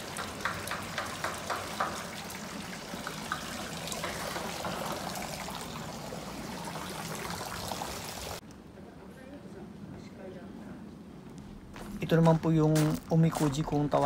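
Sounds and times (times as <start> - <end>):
water pouring into stone basin: 0.0 - 8.4.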